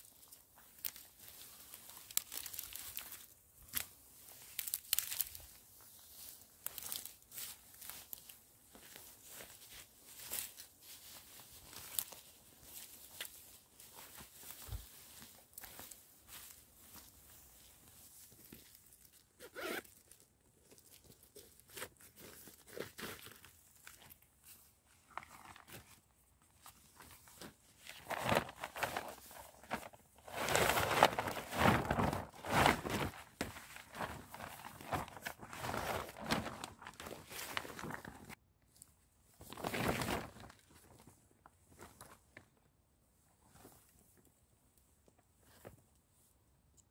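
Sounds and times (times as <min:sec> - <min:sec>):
fabric sack rustling and crackling: 0:00.0 - 0:20.1, 0:20.7 - 0:38.4, 0:39.4 - 0:41.1
footsteps on dry grass and leaves: 0:06.2 - 0:18.2.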